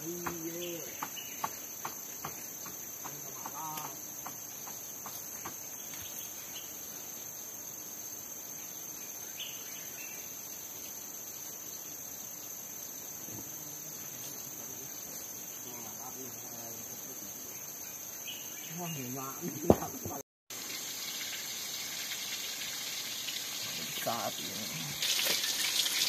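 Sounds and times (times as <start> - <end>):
insects chorus droning: 0.0 - 26.0.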